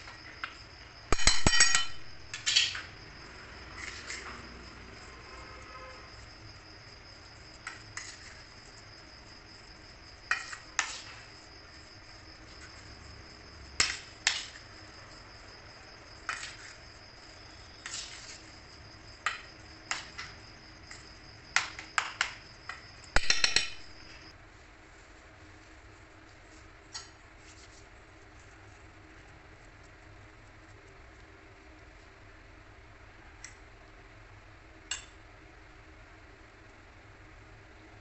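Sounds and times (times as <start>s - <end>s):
steady high-pitched whine: 0.0s - 38.0s
metal spoon clinking in steel bowl: 1.2s - 2.8s, 23.2s - 23.9s.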